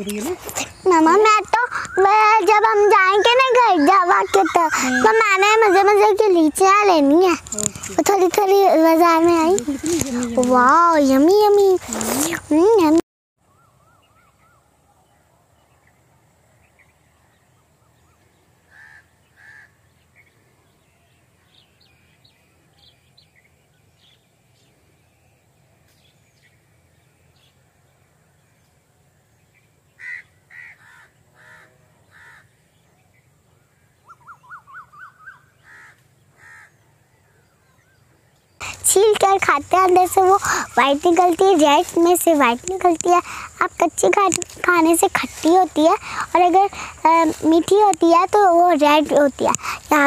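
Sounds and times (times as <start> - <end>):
crows cawing: 18.7 - 19.8, 30.0 - 32.6, 35.4 - 36.8.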